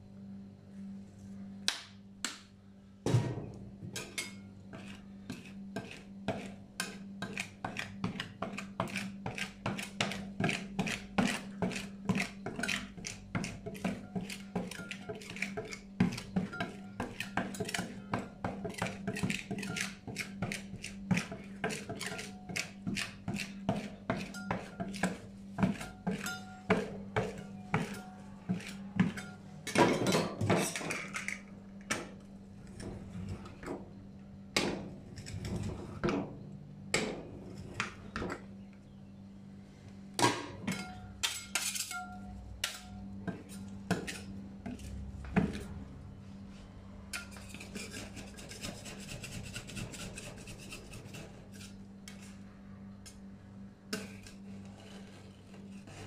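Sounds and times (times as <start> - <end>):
spatula scraping metal plate: 4.2 - 29.4, 47.2 - 52.5, 54.0 - 56.0.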